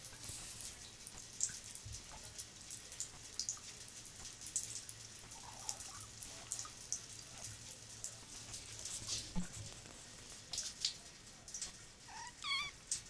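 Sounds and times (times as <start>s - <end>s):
water trickling into a bathtub: 0.0s - 13.0s.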